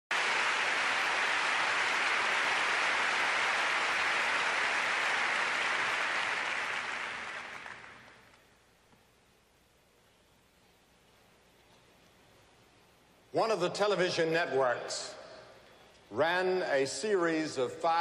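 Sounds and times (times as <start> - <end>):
crowd applauding: 0.1 - 8.4.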